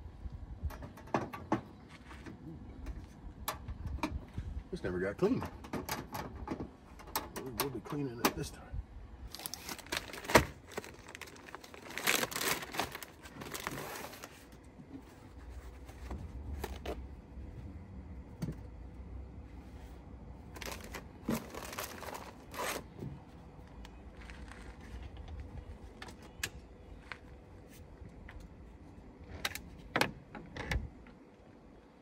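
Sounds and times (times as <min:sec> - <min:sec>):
crinkly material being torn: 0:09.3 - 0:14.6, 0:20.5 - 0:22.9.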